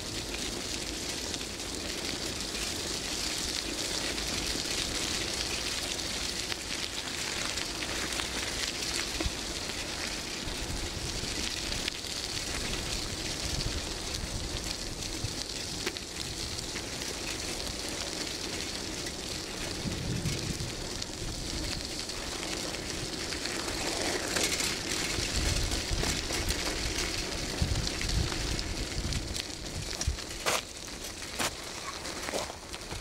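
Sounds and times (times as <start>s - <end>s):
gravel crunching under wheels: 0.0s - 33.0s
wind buffeting microphone: 19.5s - 30.5s.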